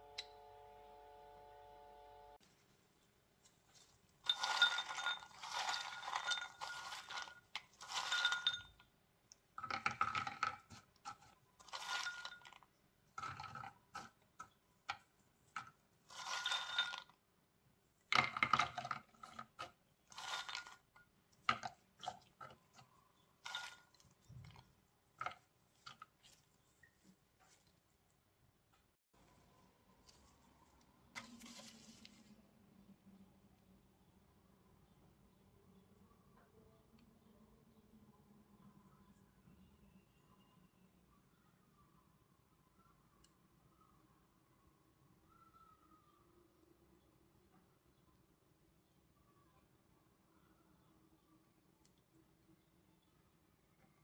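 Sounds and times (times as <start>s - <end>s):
nuts clinking and rattling: 3.8s - 17.2s, 18.1s - 26.2s.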